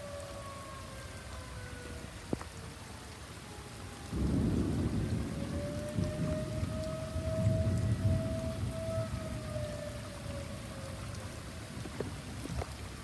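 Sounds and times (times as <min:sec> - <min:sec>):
steady rain: 0:00.0 - 0:13.0
tornado warning siren: 0:00.0 - 0:13.0
thunder rumble: 0:04.0 - 0:13.0.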